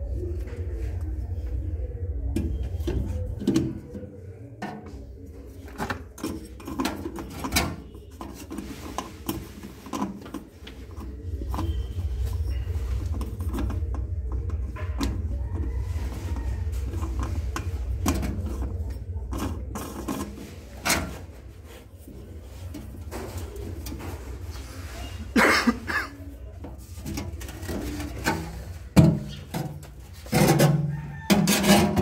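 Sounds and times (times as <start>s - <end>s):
low rumble: 0.0s - 5.4s.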